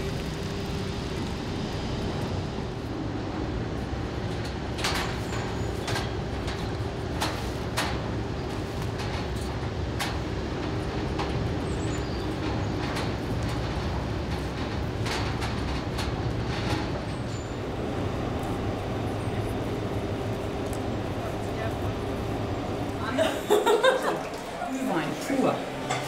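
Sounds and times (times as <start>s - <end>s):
faint hum: 17.3s - 26.0s
low rumble: 17.4s - 24.6s.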